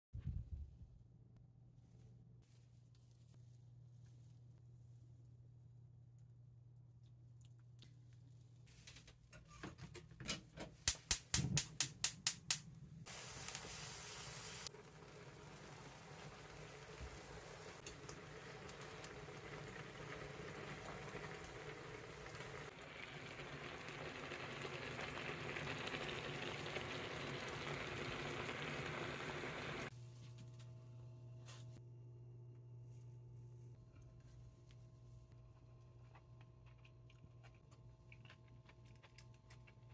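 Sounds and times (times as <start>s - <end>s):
gas burner hiss: 11.4s - 29.9s
broth simmering: 13.0s - 29.9s.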